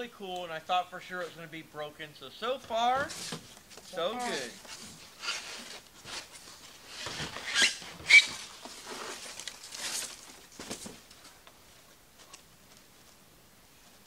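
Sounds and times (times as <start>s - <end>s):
foam rustling and rubbing: 2.8s - 11.8s
foam squeaks: 5.1s - 6.3s, 6.9s - 10.1s.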